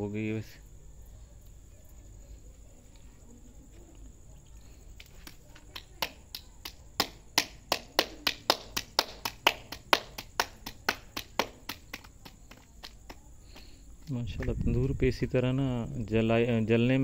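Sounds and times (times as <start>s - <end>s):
hands slapping dough: 4.9s - 15.0s.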